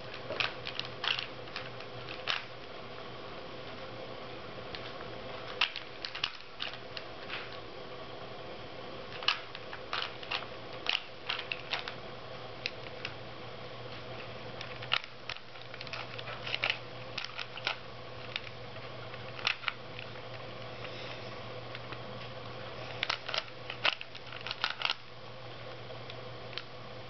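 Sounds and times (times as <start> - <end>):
plastic puzzle cube clicking: 23.0 - 25.0.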